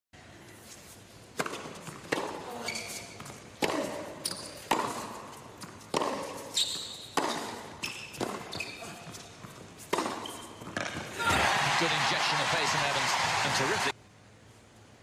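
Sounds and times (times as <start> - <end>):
shoes squeaking on court: 0.6 - 11.2
racket striking tennis ball: 1.3 - 2.7, 3.3 - 11.4
tennis ball bouncing: 1.4 - 11.4.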